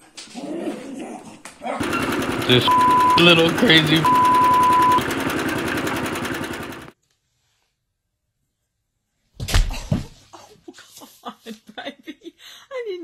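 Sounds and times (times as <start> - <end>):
fast rhythmic buzzing rattle: 1.8 - 6.9
high censor beep: 2.6 - 5.0.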